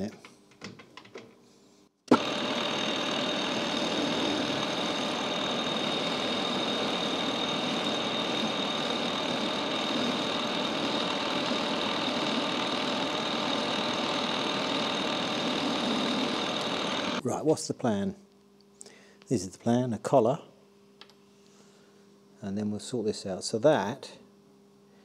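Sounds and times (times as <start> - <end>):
lathe humming with high whine: 2.1 - 17.2.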